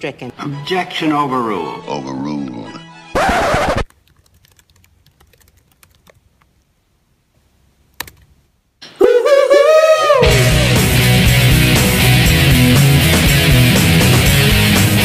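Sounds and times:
music: 0.1 - 3.2, 10.2 - 15.0
laptop keyboard typing: 3.8 - 6.5, 8.0 - 8.3.

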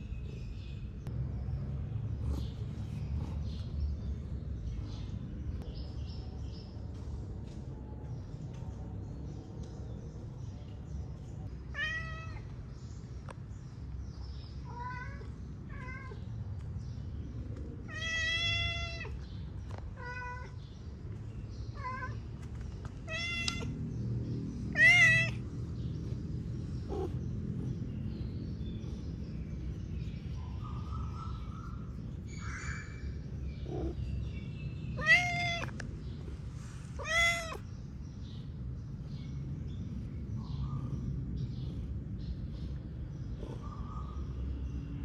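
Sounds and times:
cat meowing: 23.1 - 23.7, 24.7 - 25.4, 35.0 - 35.8, 37.0 - 37.7.

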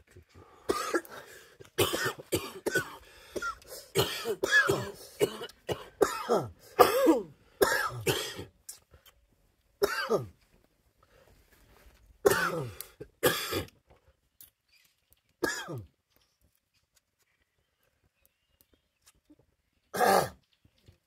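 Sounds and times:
man coughing harshly: 0.7 - 1.2, 1.8 - 8.5, 9.8 - 10.3, 12.2 - 13.7, 15.4 - 15.8, 20.0 - 20.4.

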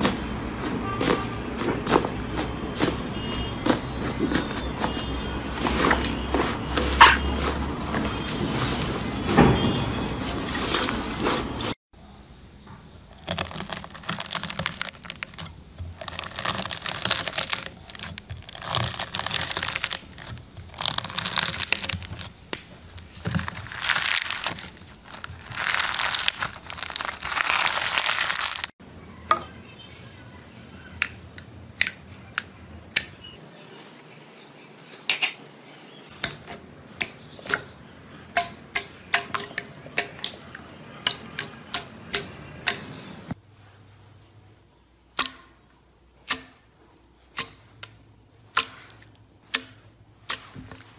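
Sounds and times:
slime squeezed crackling: 13.1 - 22.4, 23.4 - 28.7
knife slicing crunchy slime: 48.5 - 49.0.

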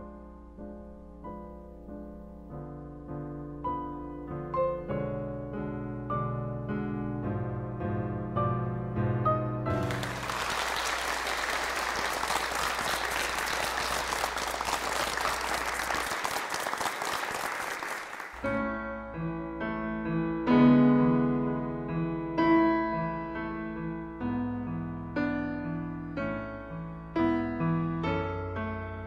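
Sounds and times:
audience applauding: 9.8 - 18.5.

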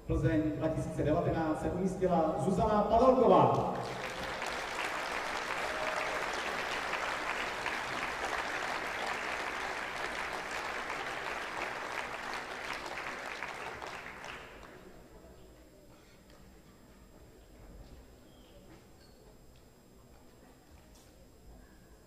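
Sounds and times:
audience applauding: 3.5 - 14.9.

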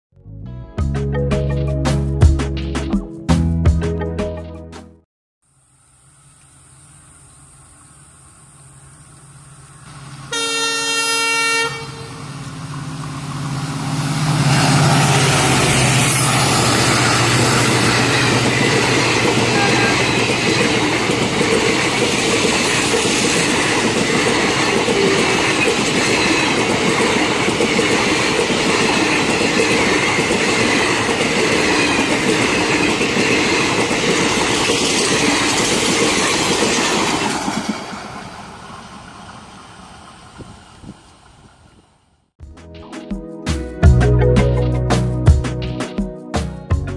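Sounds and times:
train horn blast: 10.3 - 12.3, 19.1 - 20.5
train wheels clattering on track: 12.3 - 39.4.

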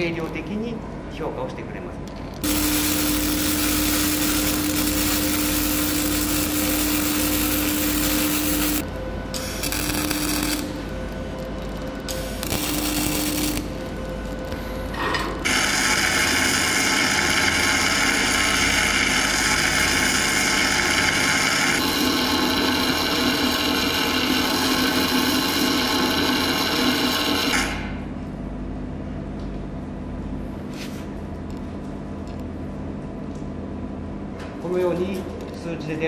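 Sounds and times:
low steady hum: 0.0 - 15.5
arc welding crackle: 2.4 - 27.8.

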